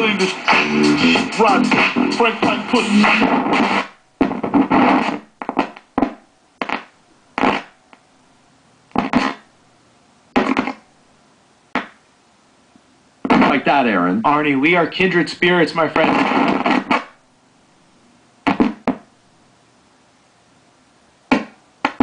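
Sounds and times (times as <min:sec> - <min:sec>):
radio music snatches: 0:00.0 - 0:08.1, 0:08.9 - 0:09.6, 0:10.3 - 0:10.9, 0:11.8 - 0:12.0, 0:13.2 - 0:17.2, 0:18.4 - 0:19.1, 0:21.3 - 0:22.0.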